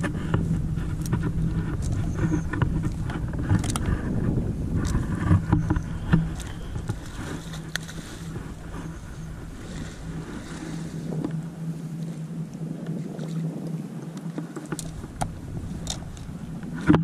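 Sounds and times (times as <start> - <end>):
faint clicks: 0.0 - 4.1, 12.0 - 17.0
steady low drone: 0.0 - 13.8, 14.8 - 17.0
wind rumbling on microphone: 0.0 - 17.0.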